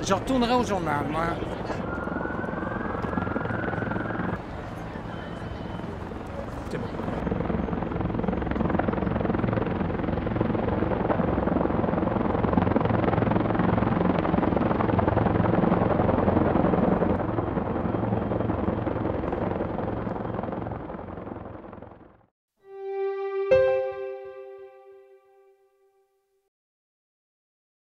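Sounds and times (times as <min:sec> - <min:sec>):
helicopter flying overhead: 0:00.0 - 0:22.3.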